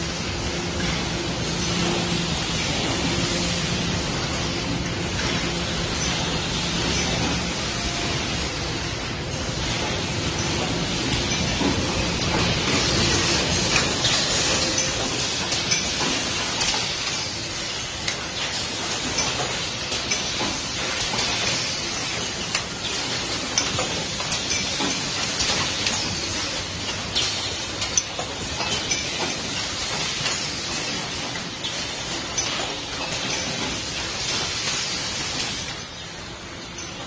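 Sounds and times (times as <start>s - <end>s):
machine hiss and hum: 0.0s - 37.0s
machine clicks and knocks: 9.6s - 35.7s.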